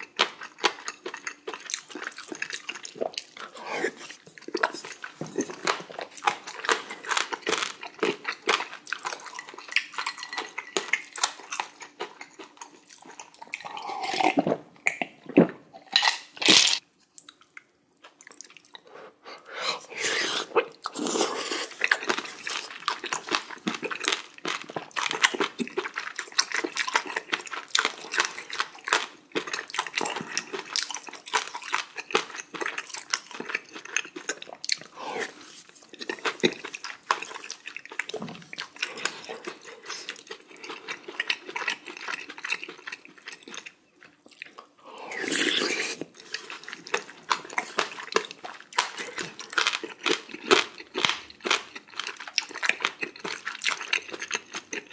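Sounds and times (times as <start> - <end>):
man slurping and chewing: 10.6 - 16.8, 18.4 - 43.6, 44.8 - 51.1.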